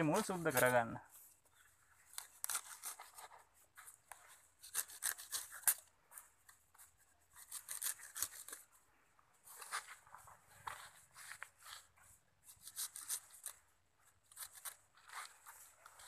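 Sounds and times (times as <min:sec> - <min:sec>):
serrated knife sawing roots: 0:02.1 - 0:03.4, 0:04.6 - 0:05.9, 0:07.3 - 0:08.7, 0:11.6 - 0:13.6.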